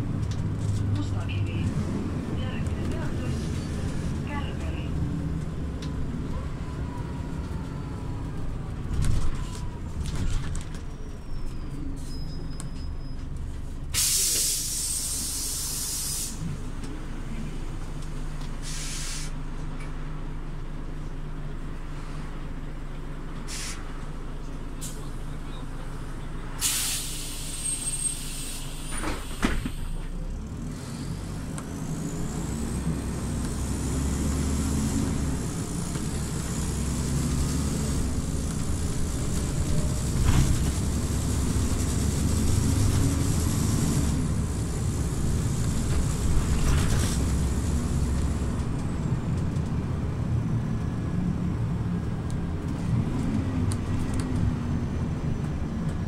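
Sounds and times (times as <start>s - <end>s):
bus engine rumble: 0.0s - 56.0s
air brake hiss: 13.9s - 16.5s, 18.6s - 19.4s, 23.5s - 23.8s, 26.6s - 30.0s.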